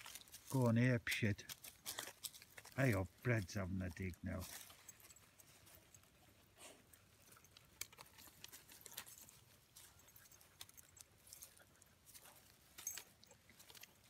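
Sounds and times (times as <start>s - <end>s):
dogs digging in dry dirt: 0.0s - 14.0s.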